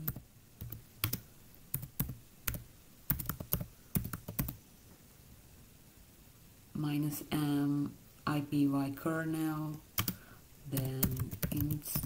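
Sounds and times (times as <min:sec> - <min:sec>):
typing on computer keyboard: 0:00.0 - 0:04.6, 0:10.0 - 0:10.2, 0:10.8 - 0:12.0.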